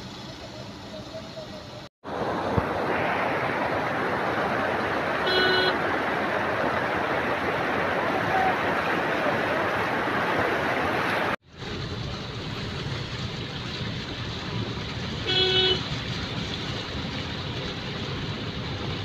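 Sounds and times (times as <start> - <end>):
rush of floodwater: 0.0 - 19.0
street traffic noise: 0.0 - 19.0
vehicle horn toot: 5.2 - 5.8, 15.2 - 15.8.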